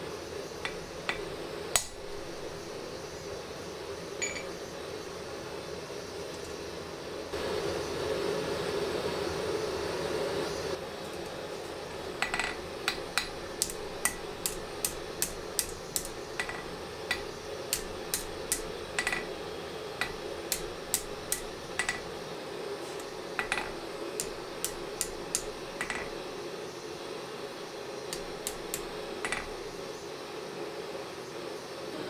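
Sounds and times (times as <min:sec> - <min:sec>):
hammer striking steel on anvil: 0:00.6 - 0:02.6, 0:12.2 - 0:19.3, 0:20.0 - 0:22.1, 0:23.4 - 0:26.2, 0:28.1 - 0:29.7.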